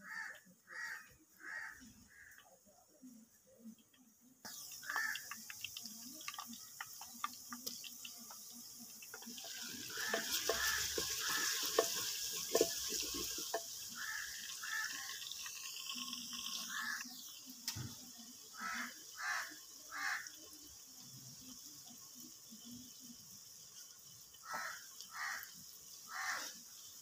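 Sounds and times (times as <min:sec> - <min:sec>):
food sizzling in hot oil: 0:02.9 - 0:27.0
ladle scraping clay pot: 0:09.4 - 0:17.0.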